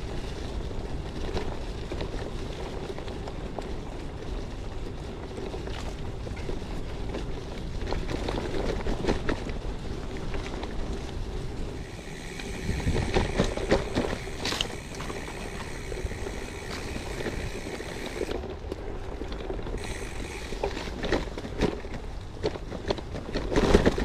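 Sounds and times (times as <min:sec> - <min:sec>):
bike tyre noise on dirt: 0:00.0 - 0:24.0
bike knocks and rattles: 0:11.7 - 0:24.0.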